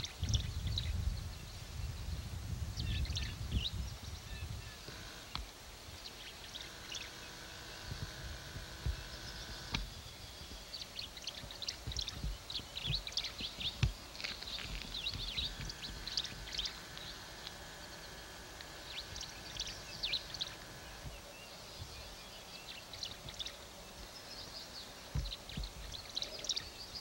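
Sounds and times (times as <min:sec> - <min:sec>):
small birds chirping: 0:00.0 - 0:27.0
low thumps on microphone: 0:07.8 - 0:16.8, 0:25.1 - 0:26.1.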